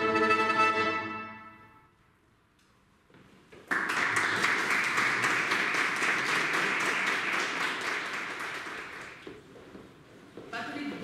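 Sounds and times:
audience applause: 3.7 - 9.3.

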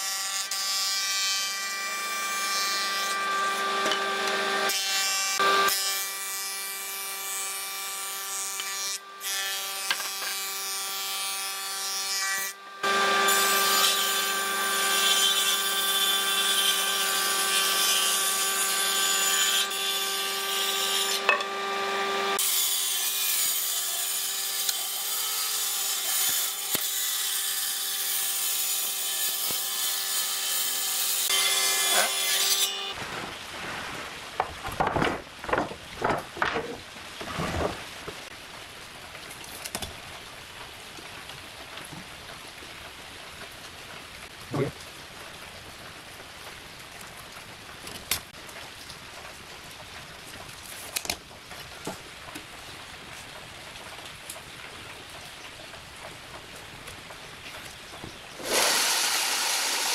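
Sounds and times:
wood cutting hiss: 58.4 - 59.9
woodworking machine motor whine: 58.4 - 59.9.

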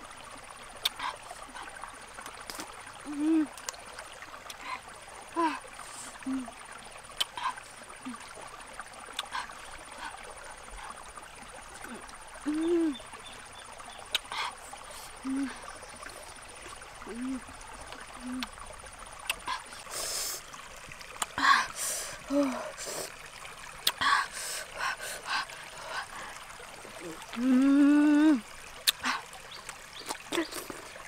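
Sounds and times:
babbling stream: 0.0 - 31.0
woman humming mmm: 3.0 - 3.6, 5.4 - 6.5, 11.8 - 13.0, 14.2 - 15.6, 17.0 - 17.5, 18.1 - 18.5, 27.0 - 29.2.

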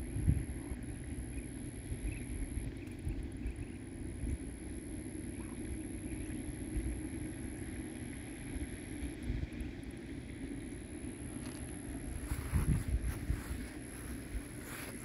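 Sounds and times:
wind rumbling on microphone: 0.0 - 4.6, 11.0 - 15.0
faint high-pitched whine: 0.0 - 15.0
outdoor background hiss: 0.0 - 15.0.

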